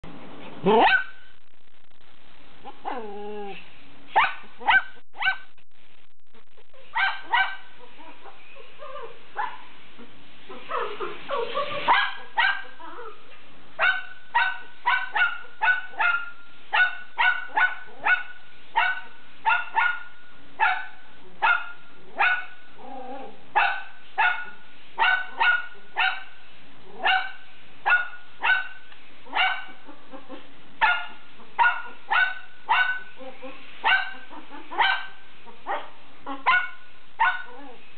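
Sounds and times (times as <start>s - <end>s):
puppy yipping: 10.5s - 13.2s, 27.0s - 37.8s.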